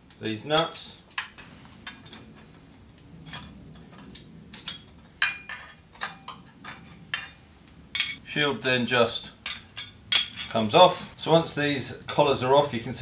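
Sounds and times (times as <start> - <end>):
light metallic clinks: 3.2 - 8.2, 9.4 - 10.6.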